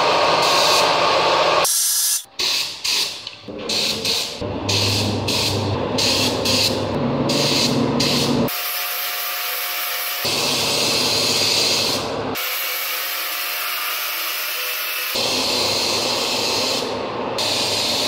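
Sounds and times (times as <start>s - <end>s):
compressed-air spray gun hissing: 1.7s - 8.8s, 15.0s - 18.0s.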